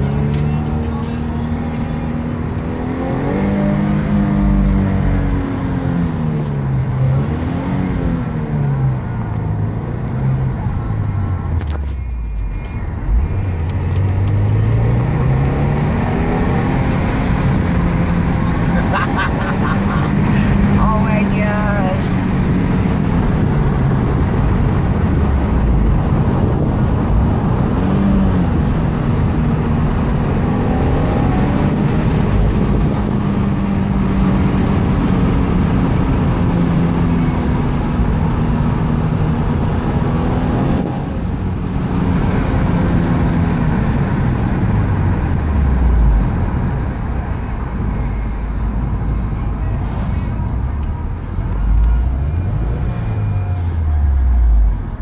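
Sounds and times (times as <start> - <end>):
car engine from inside cabin: 0.0 - 55.0
tyre and road noise: 0.0 - 55.0.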